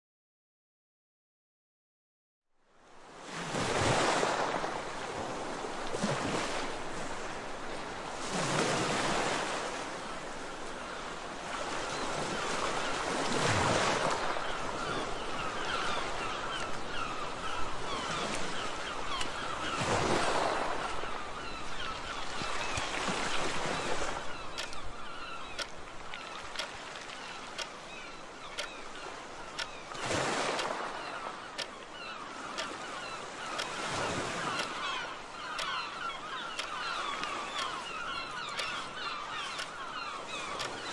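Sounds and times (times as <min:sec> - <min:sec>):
sea waves washing in: 0:02.9 - 0:40.9
birds calling: 0:14.2 - 0:40.9
clock ticking: 0:24.6 - 0:24.8, 0:34.6 - 0:34.8, 0:38.6 - 0:38.8.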